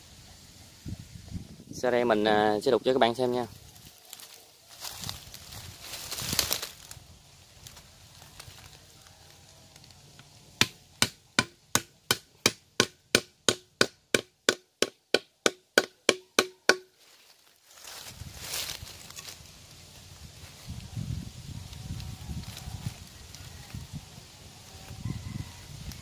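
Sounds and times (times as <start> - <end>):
hammering metal pipe: 10.6 - 17.0.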